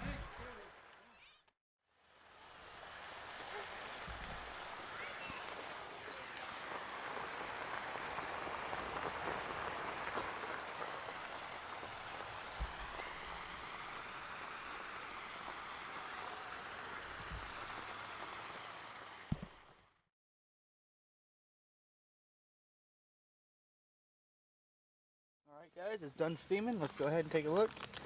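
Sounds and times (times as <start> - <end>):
heater fizzing and hissing: 2.2 - 19.8.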